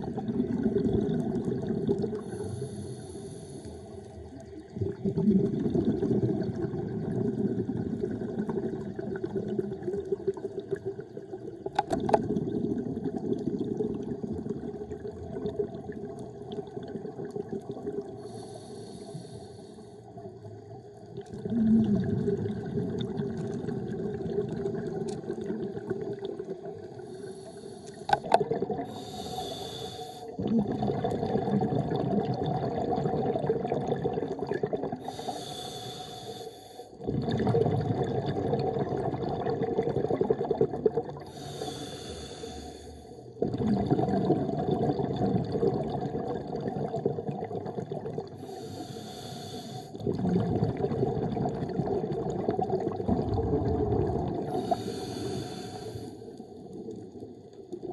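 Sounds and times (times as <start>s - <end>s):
bubbling exhaust underwater: 0.0s - 57.9s
diver inhaling through regulator: 2.1s - 4.0s, 18.2s - 20.0s, 26.9s - 31.2s, 35.0s - 37.0s, 41.2s - 43.4s, 48.4s - 50.1s, 54.4s - 56.6s.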